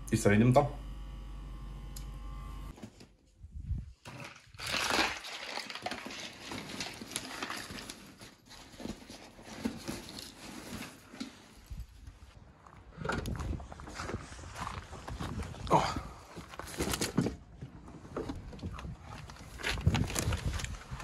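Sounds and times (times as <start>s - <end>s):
room hum: 0.0s - 3.1s.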